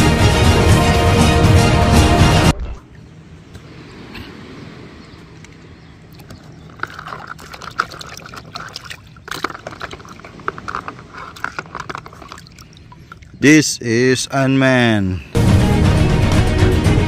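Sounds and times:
liquid splashing in bowl: 6.2 - 13.4.

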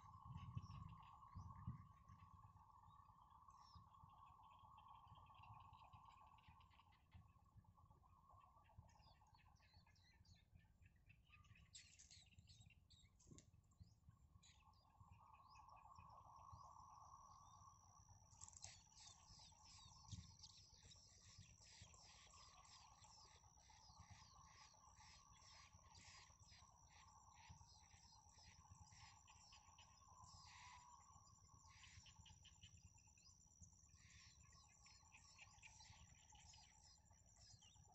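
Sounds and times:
thin steady high tone: 14.4 - 37.9
nestlings begging chirps: 18.3 - 37.8.

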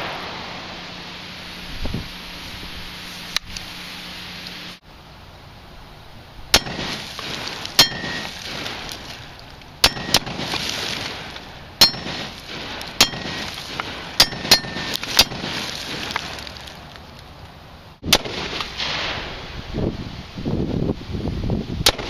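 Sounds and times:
bullets clanging on steel plate: 7.8 - 8.3, 9.8 - 10.3, 11.8 - 12.2, 14.2 - 15.3.

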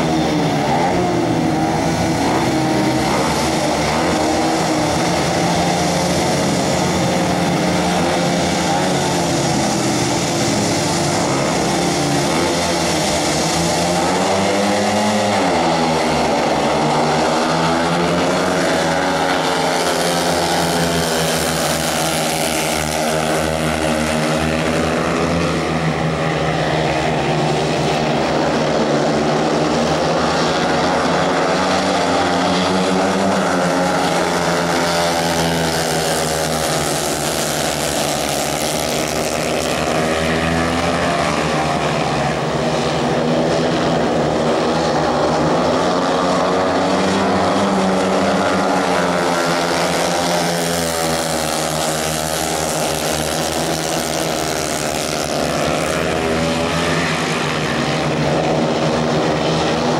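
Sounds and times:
motorcycles racing: 0.0 - 59.9.

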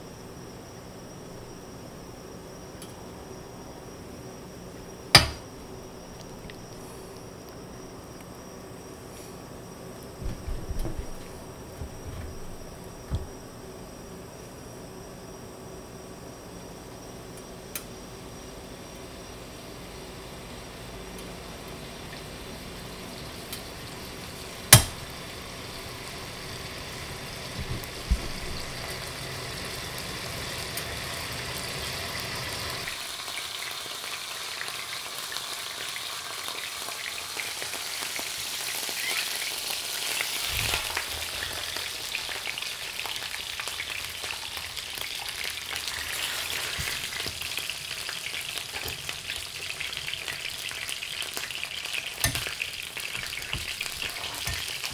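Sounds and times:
fish frying in a pan: 18.7 - 54.9.

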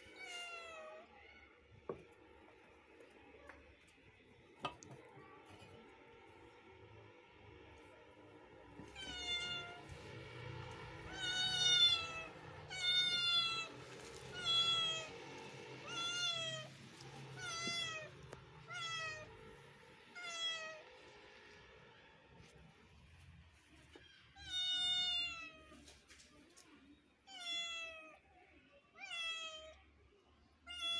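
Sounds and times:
kitten meowing: 9.0 - 9.8, 11.1 - 13.7, 14.3 - 15.1, 15.8 - 16.7, 18.7 - 19.3.

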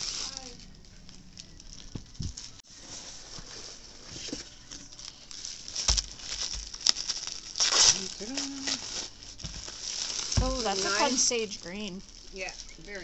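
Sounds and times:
plastic wrapping crinkling: 0.0 - 13.0
soft thumps: 10.3 - 10.9.

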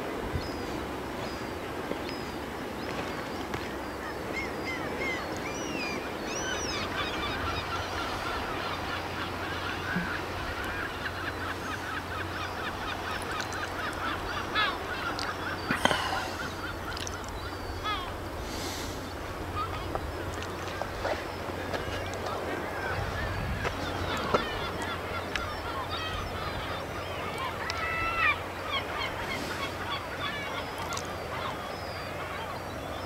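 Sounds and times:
flock of birds calling: 0.4 - 33.0.

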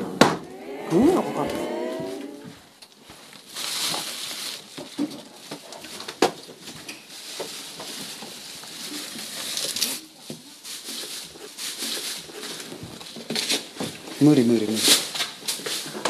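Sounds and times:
rustling: 3.0 - 14.2
rustle of cloth curtain: 6.9 - 12.2.

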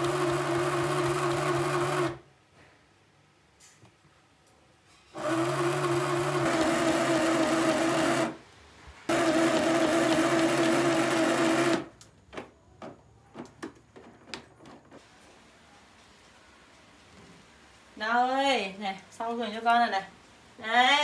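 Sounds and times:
sewing machine running: 0.0 - 2.2, 5.2 - 8.4, 9.1 - 11.9.

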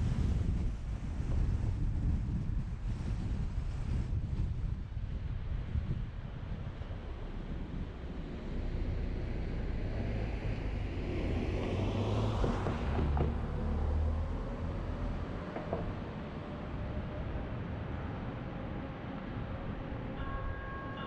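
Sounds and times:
car road and wind rumble: 0.0 - 21.0
vehicle passing by: 7.6 - 17.8.

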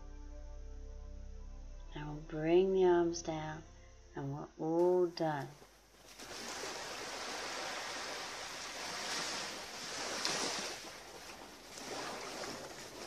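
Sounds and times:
waves lapping on shore: 6.0 - 13.0.

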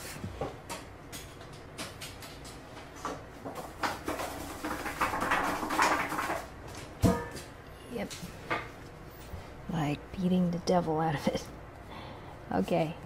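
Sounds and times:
paper being shaken and flapped: 3.6 - 6.5.

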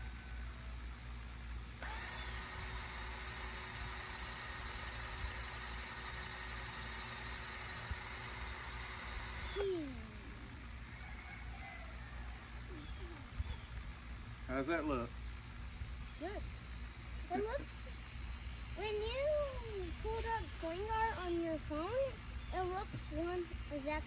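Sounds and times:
cordless drill motor whining: 1.8 - 10.9, 16.2 - 17.8.

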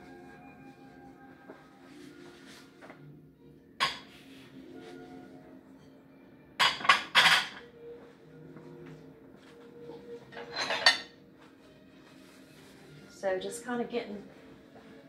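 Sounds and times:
ceramic dishes clinking and clattering: 3.8 - 4.1, 6.6 - 7.7, 10.3 - 11.2.

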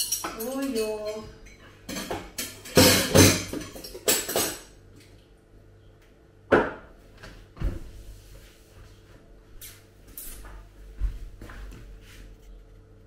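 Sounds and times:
utensils and dishes clattering: 0.0 - 4.8.

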